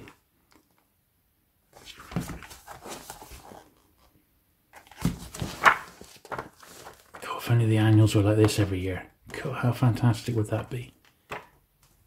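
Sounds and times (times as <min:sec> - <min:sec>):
book pages and cover rustling: 0:01.7 - 0:07.4.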